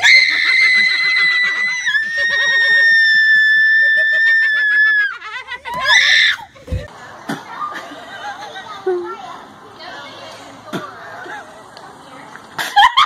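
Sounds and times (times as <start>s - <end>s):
people laughing: 0.0s - 9.2s, 12.6s - 13.0s
girl screaming: 5.8s - 6.5s.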